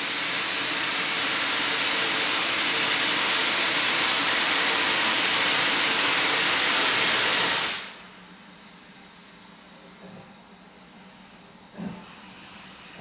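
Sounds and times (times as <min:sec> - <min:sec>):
steam locomotive hissing: 0:00.0 - 0:13.0.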